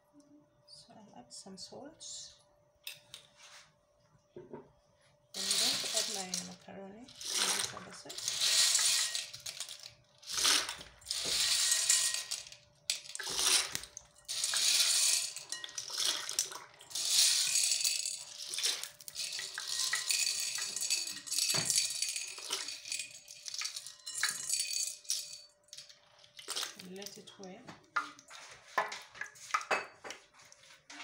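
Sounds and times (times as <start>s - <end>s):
dry macaroni clattering: 5.4s - 26.8s.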